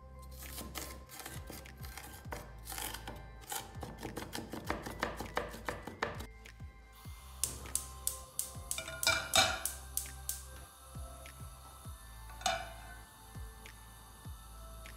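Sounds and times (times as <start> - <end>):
knife chopping on wooden board: 3.8 - 6.3.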